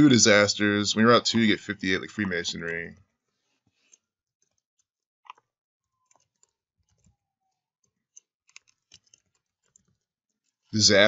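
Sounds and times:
computer keyboard typing: 0:03.9 - 0:07.2, 0:07.8 - 0:10.1.

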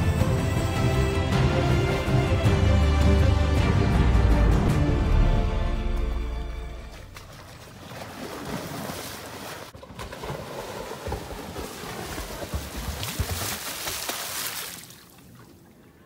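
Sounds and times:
music: 0:00.0 - 0:07.2
water splashing under dock: 0:06.8 - 0:15.6.

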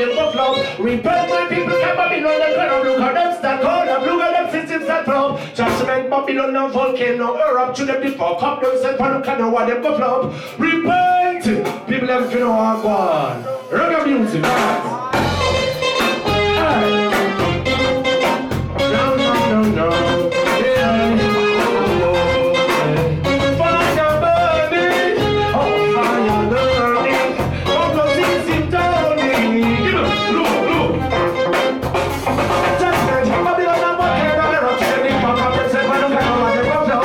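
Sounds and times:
man singing: 0:00.0 - 0:31.5, 0:32.6 - 0:37.0
reggae band playing: 0:00.0 - 0:37.0
pulsing bass line: 0:14.3 - 0:37.0.

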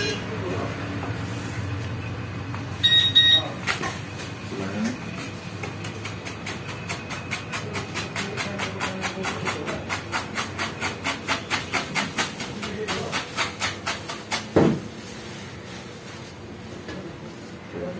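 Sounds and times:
knife chopping on plastic board: 0:05.6 - 0:14.9.

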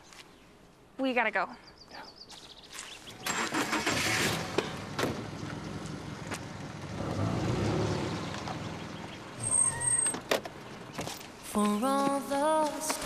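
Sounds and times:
car engine starting: 0:03.2 - 0:11.0.

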